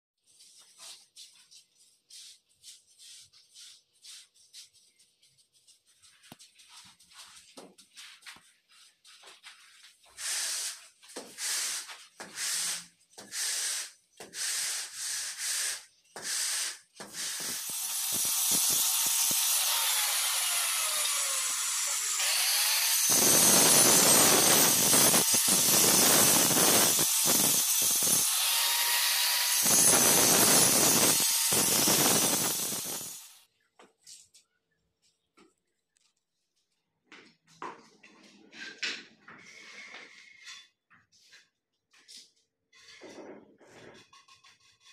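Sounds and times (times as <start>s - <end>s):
angle grinder cutting tile: 10.2s - 33.4s.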